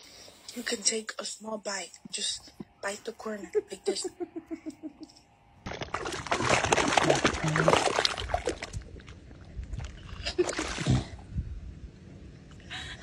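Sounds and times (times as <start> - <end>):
dog splashing in muddy puddle: 5.7 - 11.2.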